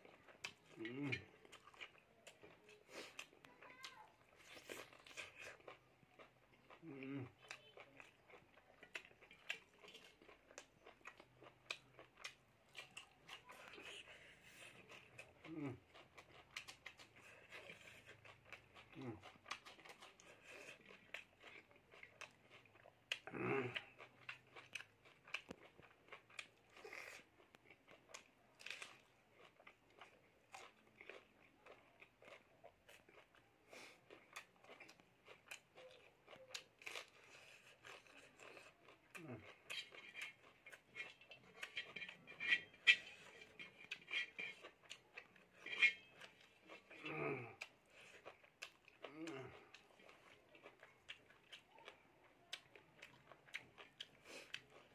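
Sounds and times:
chewing and lip-smacking: 0.0 - 54.9
fingers mixing food on steel plate: 39.4 - 47.0
voiced mouth sound: 46.9 - 47.6.

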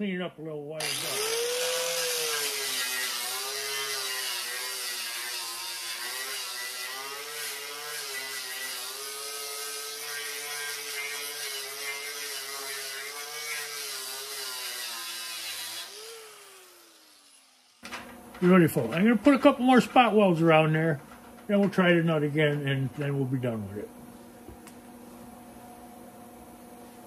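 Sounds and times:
angle grinder wire wheel on metal: 0.8 - 17.8.

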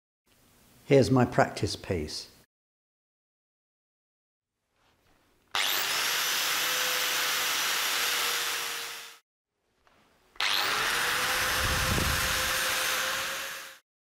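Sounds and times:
angle grinder grinding steel: 5.5 - 9.2, 10.4 - 13.8.

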